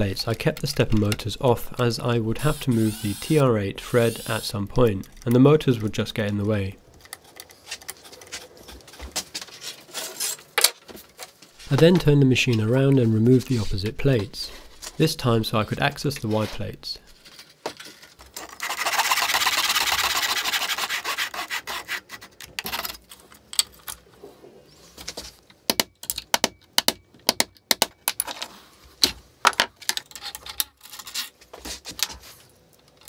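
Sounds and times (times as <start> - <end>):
metal parts clicking and knocking: 25.7 - 28.5.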